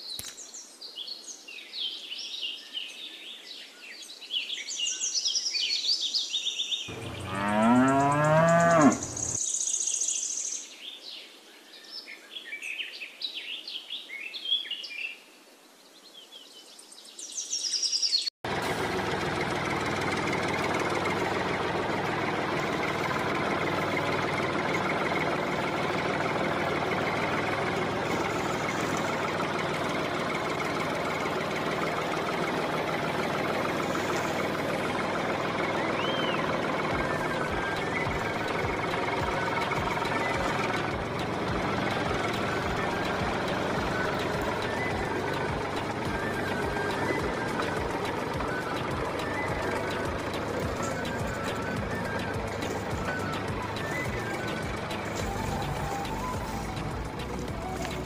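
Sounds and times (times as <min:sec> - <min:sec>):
birds chirping: 0:00.0 - 0:11.2, 0:19.1 - 0:58.0
cow mooing: 0:06.9 - 0:09.2
tractor engine running: 0:06.9 - 0:09.4, 0:18.4 - 0:58.0.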